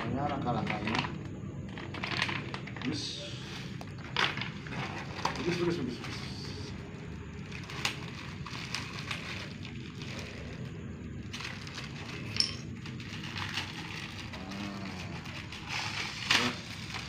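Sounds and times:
low background hum: 0.0s - 17.0s
plastic bags crinkling: 7.3s - 17.0s.

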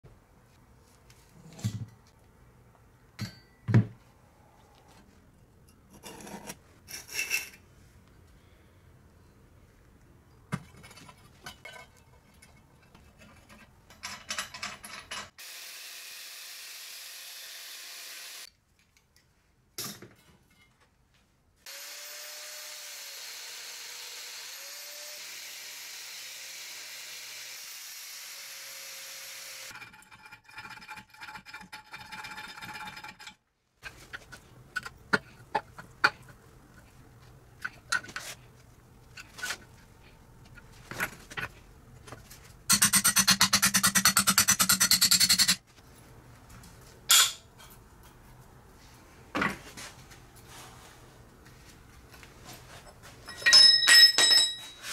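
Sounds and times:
hand tools scraping metal: 5.8s - 7.6s, 10.6s - 15.4s, 42.7s - 45.6s
power tool running: 15.4s - 18.5s, 21.7s - 29.7s
tool whine: 15.4s - 18.5s, 21.7s - 29.7s.

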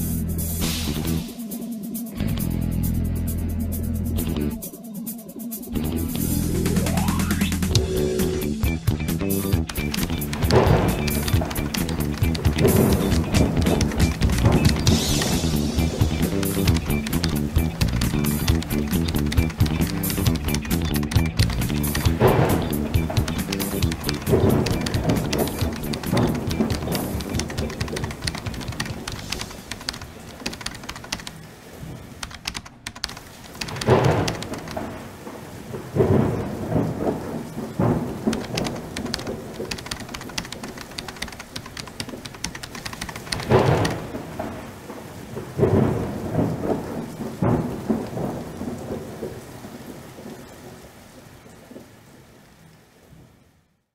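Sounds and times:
rain falling: 0.0s - 53.9s
rolls of thunder: 22.1s - 23.3s, 33.8s - 39.7s, 43.5s - 50.8s.

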